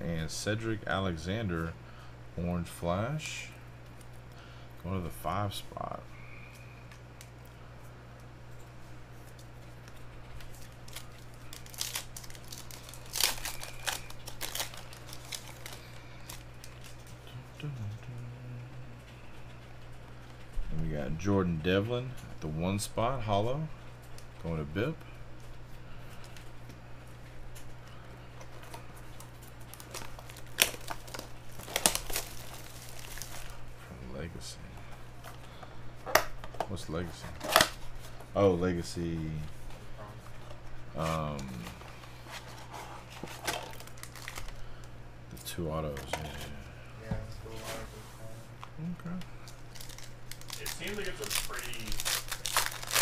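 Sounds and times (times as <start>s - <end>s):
steady low hum: 0.0s - 53.0s
cards rustling: 9.1s - 17.2s, 24.0s - 33.6s, 40.2s - 44.9s, 49.4s - 53.0s
foil pack crinkling and tearing: 9.2s - 17.2s, 28.4s - 33.6s, 40.4s - 44.9s, 49.4s - 53.0s.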